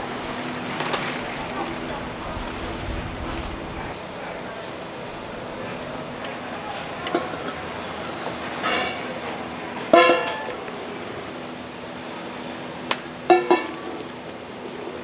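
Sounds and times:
loud ringing clang: 0:09.9 - 0:10.6.

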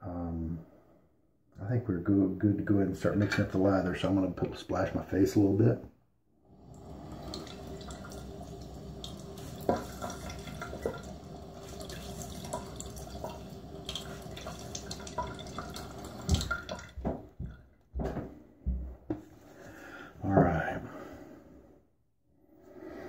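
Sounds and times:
tap running into sink: 0:07.1 - 0:18.2
hands splashing water: 0:09.0 - 0:17.3.

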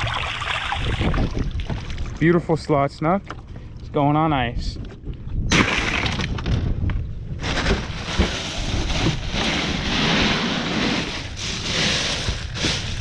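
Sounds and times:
water rushing from a boat: 0:00.0 - 0:02.2
wind buffeting microphone: 0:00.0 - 0:10.2.

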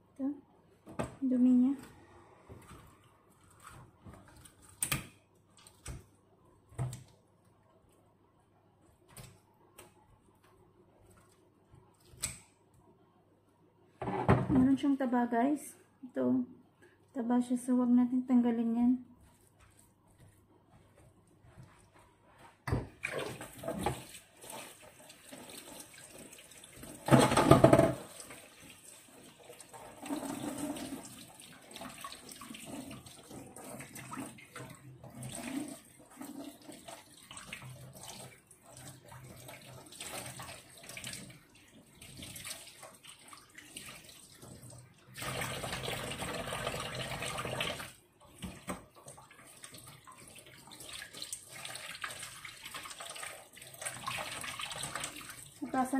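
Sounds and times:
tap water running: 0:22.6 - 0:55.9.

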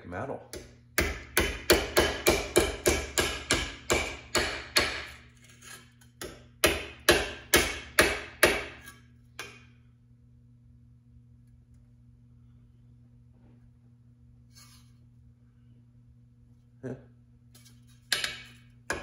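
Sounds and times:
hammer striking metal: 0:00.5 - 0:05.2, 0:06.2 - 0:09.7, 0:18.1 - 0:19.0.

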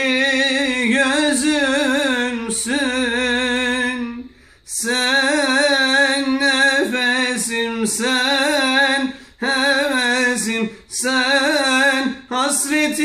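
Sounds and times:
man singing with vibrato: 0:00.0 - 0:13.0.

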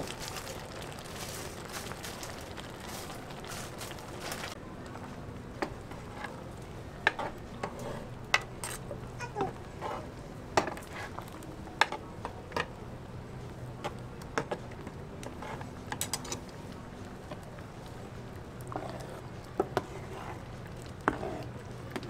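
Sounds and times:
metal utensils clinking on pan: 0:15.9 - 0:16.4.

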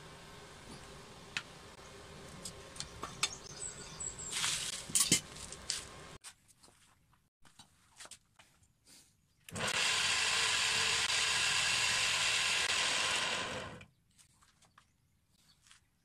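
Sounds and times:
grinder motor running: 0:09.5 - 0:13.9.

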